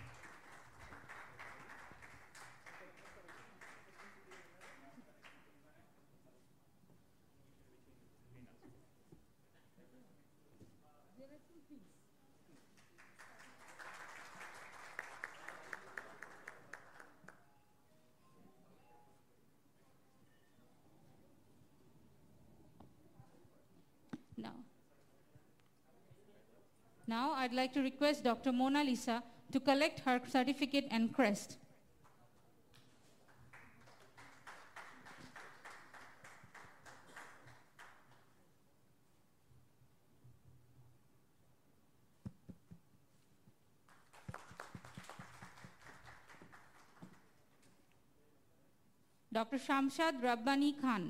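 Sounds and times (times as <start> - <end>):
light applause: 0.0 - 5.6, 12.5 - 17.5, 32.0 - 38.4, 43.8 - 47.7
one person clapping sharply: 33.6 - 38.2, 43.9 - 47.3.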